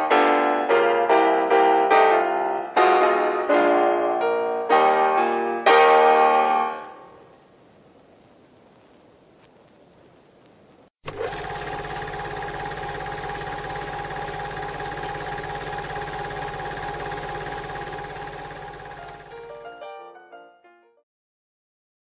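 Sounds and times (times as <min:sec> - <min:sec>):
fast mechanical clatter: 0:11.0 - 0:19.7
machine hum: 0:11.1 - 0:19.7.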